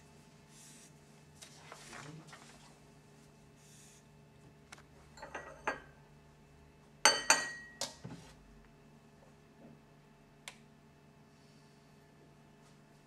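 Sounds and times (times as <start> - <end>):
tableware clicking: 5.2 - 5.9, 7.1 - 7.8
ringing clinks of tableware: 7.1 - 7.8.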